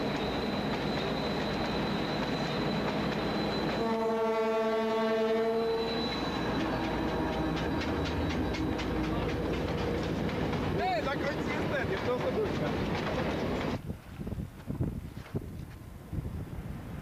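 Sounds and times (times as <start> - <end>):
freight train rumble: 0.0 - 17.0
locomotive horn blast: 3.8 - 5.9
wheels clicking over rail joints: 6.0 - 13.8.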